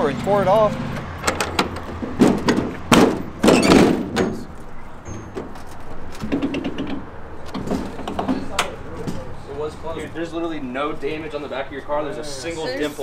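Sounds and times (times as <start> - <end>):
latch and hinge clicks: 1.0 - 2.5
heavy metal door thunks: 1.2 - 5.6.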